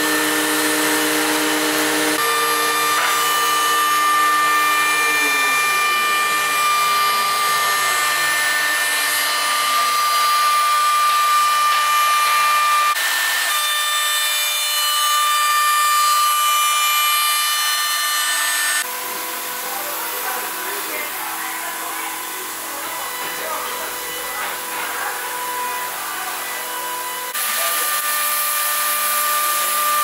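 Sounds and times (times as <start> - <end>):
high-pitched machine whine: 0.0 - 13.0.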